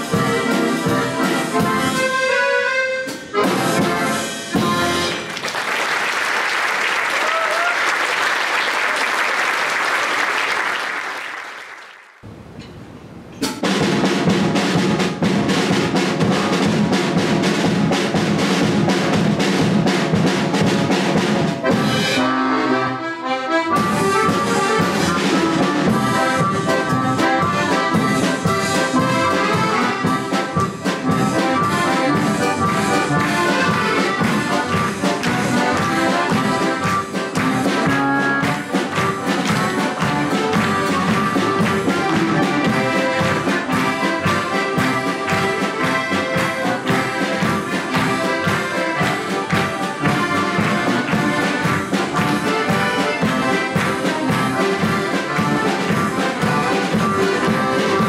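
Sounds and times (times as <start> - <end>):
accordion orchestra playing: 0.0 - 5.4, 14.0 - 58.0
applause: 5.1 - 12.2, 33.2 - 37.6, 38.4 - 56.0.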